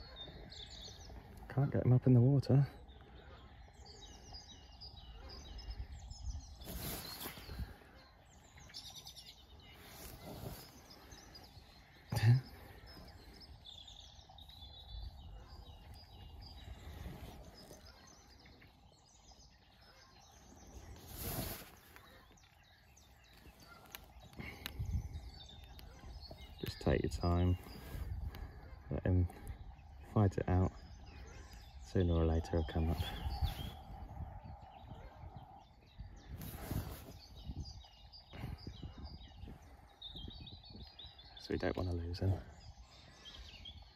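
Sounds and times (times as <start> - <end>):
small birds chirping: 0.0 - 43.9.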